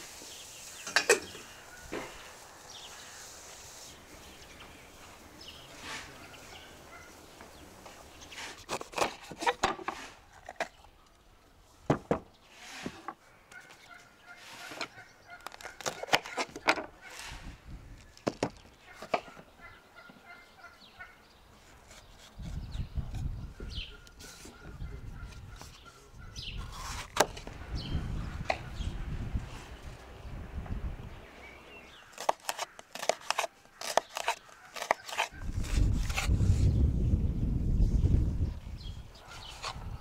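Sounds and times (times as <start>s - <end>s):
poultry calls: 5.8s - 7.2s, 13.5s - 17.3s, 18.8s - 21.3s
knife cutting on wooden board: 8.4s - 10.1s, 32.2s - 36.3s.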